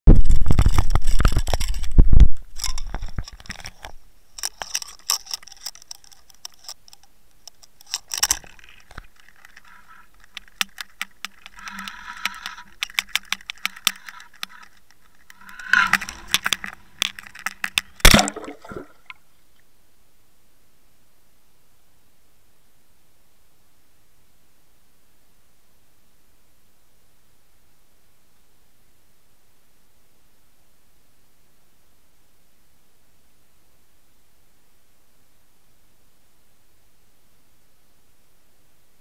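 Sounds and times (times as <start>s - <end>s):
clicks rattles and scrapes: 0.1s - 19.2s
camera handling noise: 0.2s - 19.2s.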